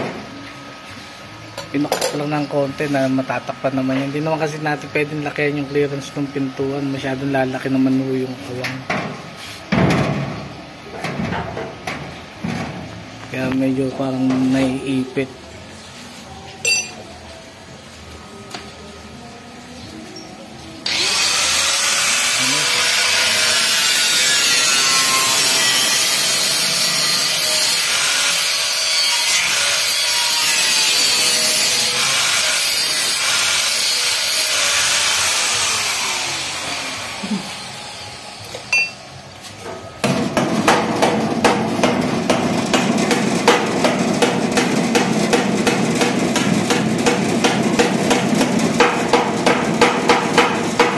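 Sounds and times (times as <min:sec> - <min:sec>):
angle grinder cutting steel: 0:20.8 - 0:38.9.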